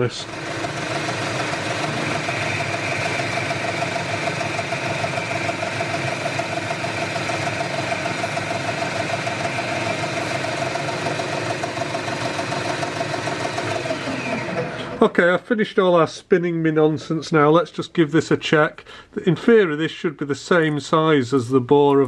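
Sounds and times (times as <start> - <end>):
metal lathe running: 0.0 - 15.1.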